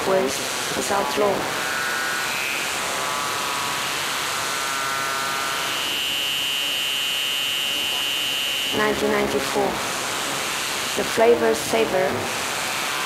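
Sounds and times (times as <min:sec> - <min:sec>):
sustained high tones: 0:05.5 - 0:12.0.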